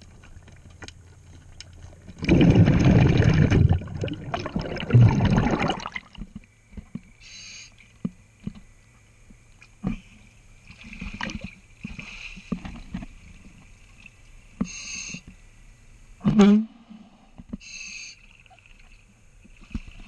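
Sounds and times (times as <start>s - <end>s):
underwater bubbles rushing: 2.1s - 6.3s
short high hisses: 14.7s - 15.2s, 17.6s - 18.2s.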